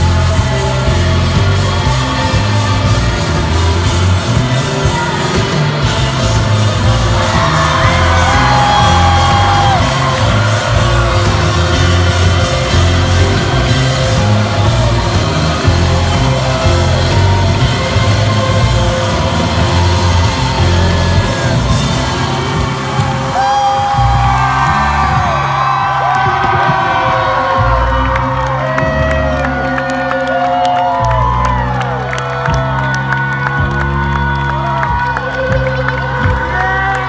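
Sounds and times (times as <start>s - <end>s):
kick drum and bass: 0.0s - 29.8s
crowd yells and whoops: 0.0s - 37.0s.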